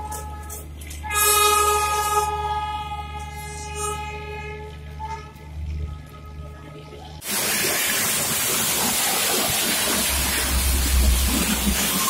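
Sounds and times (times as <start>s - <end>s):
steam hissing: 7.2s - 12.0s
low rumble: 10.0s - 12.0s.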